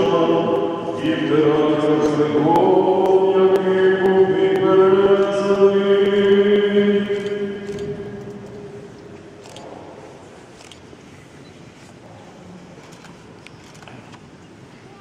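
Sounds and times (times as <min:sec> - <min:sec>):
voices chanting long held notes: 0:00.0 - 0:08.9.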